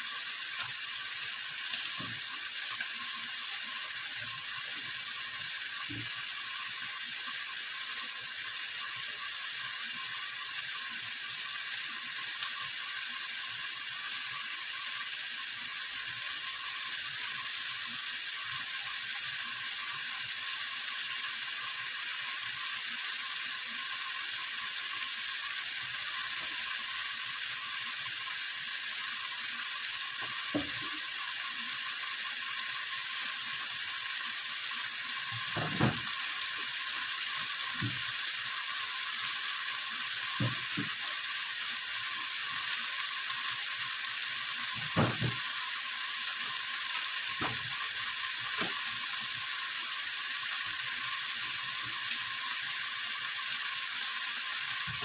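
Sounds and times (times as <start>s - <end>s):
chicken sizzling in a pot: 0.0s - 55.0s.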